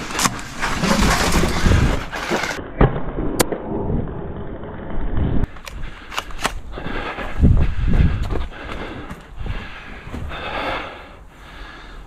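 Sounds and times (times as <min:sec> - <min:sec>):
rustling noise: 0:00.0 - 0:02.6.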